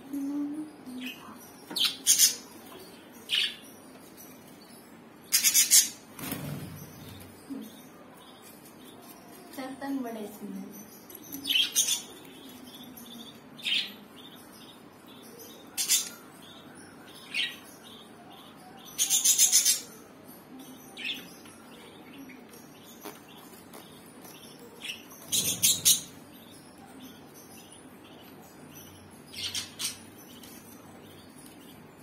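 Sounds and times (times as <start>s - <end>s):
budgerigars chirping: 5.3s - 7.3s, 15.7s - 20.0s, 22.9s - 31.6s.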